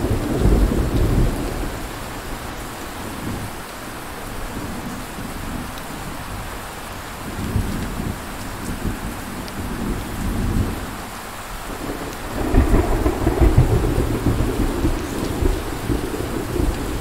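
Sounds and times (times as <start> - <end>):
rolling thunder: 0.0 - 3.5, 11.6 - 17.0
rain hissing: 0.0 - 17.0.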